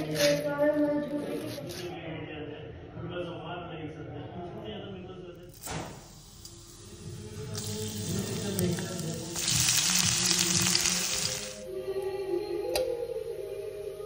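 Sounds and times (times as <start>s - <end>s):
onion frying in oil: 5.5s - 11.6s
spices sizzling in hot oil: 5.6s - 11.6s
background music: 6.9s - 14.0s.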